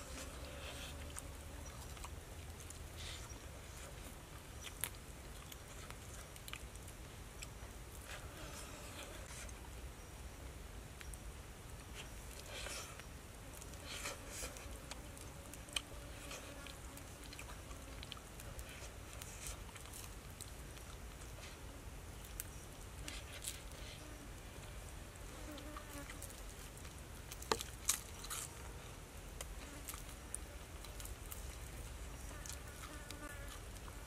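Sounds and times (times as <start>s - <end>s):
insects buzzing: 31.6s - 34.0s.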